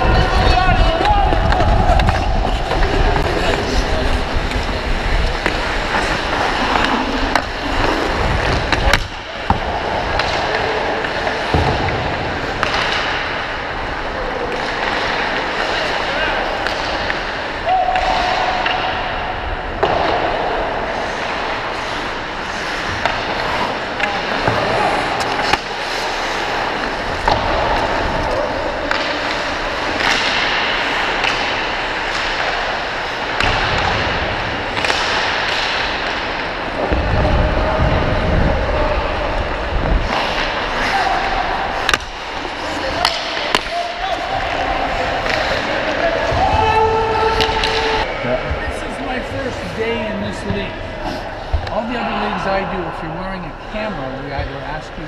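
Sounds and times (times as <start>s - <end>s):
skates scraping on ice: 0.0s - 52.2s
hockey sticks and puck clacking: 0.0s - 55.0s
skate blades scraping ice: 1.4s - 11.6s, 20.9s - 33.4s
wind rumble on microphone: 36.9s - 40.0s.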